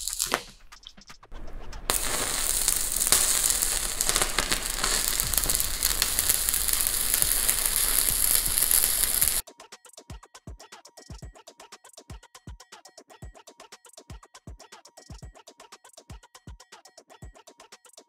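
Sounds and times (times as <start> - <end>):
welding arc crackling: 0.0 - 9.4.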